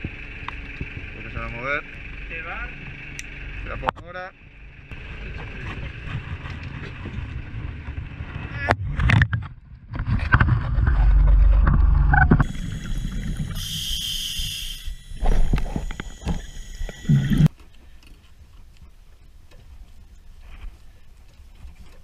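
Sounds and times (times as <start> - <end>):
regulator breath hiss: 12.4 - 17.5.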